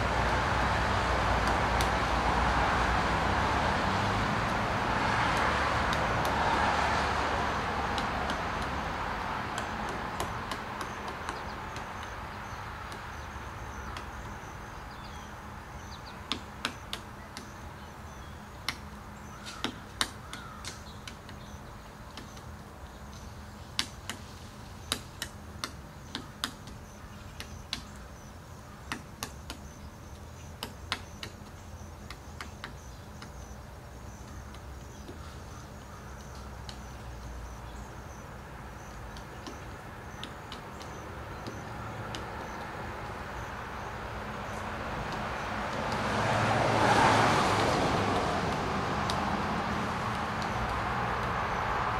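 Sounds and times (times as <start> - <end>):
passing vehicle: 0.0 - 15.2, 40.8 - 51.9
woodpecker pecking on wood: 1.3 - 2.5, 4.4 - 51.9.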